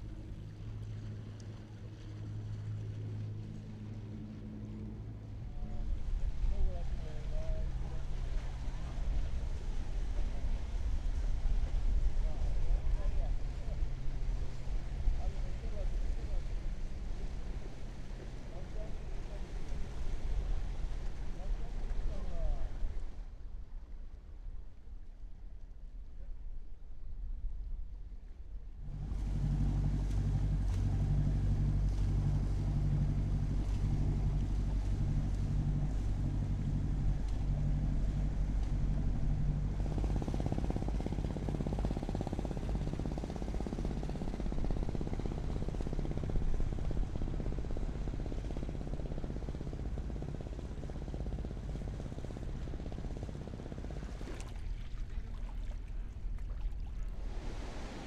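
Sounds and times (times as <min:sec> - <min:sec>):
boat motor humming: 0:00.0 - 0:23.1, 0:28.8 - 0:58.0
wind and water rushing: 0:51.8 - 0:58.0.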